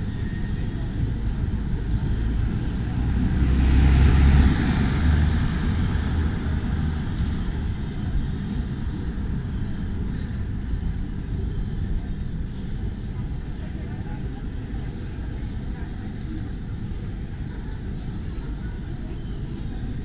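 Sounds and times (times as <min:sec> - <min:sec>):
street traffic: 0:00.0 - 0:20.0
vehicle passing close by: 0:02.5 - 0:07.7.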